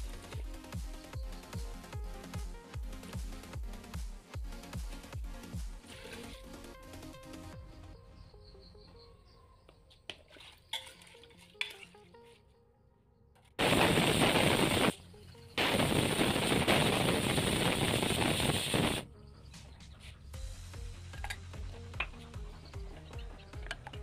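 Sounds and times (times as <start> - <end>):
pressure cooker whistling steam: 13.6 - 14.9, 15.6 - 19.0.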